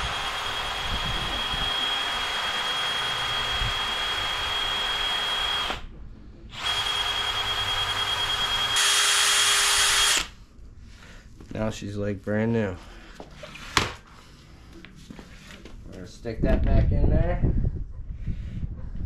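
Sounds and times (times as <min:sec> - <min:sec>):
wire brush power tool whining: 0:00.0 - 0:05.9, 0:06.5 - 0:10.3.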